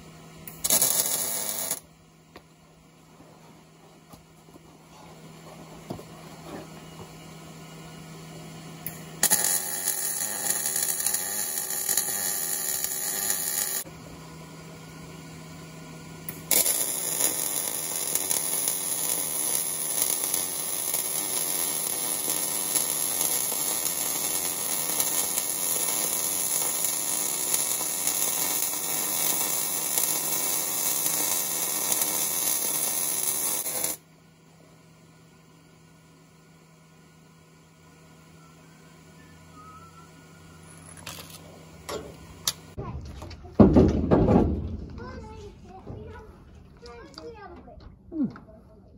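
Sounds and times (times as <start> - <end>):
welder crackling: 0.0 - 1.9, 8.8 - 13.9, 16.2 - 34.0.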